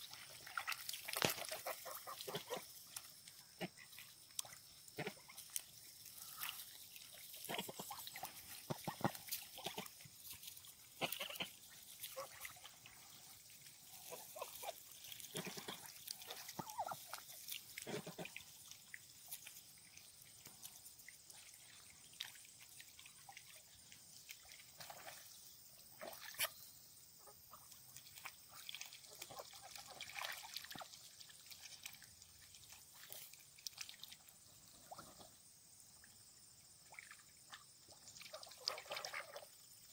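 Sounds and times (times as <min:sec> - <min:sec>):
ducks splashing in water: 0:00.0 - 0:25.3, 0:25.9 - 0:26.5, 0:27.4 - 0:35.4, 0:36.8 - 0:39.9
soft duck calls: 0:01.4 - 0:02.8, 0:05.0 - 0:05.5, 0:07.4 - 0:10.0, 0:10.9 - 0:12.6, 0:13.9 - 0:17.2, 0:17.8 - 0:18.4.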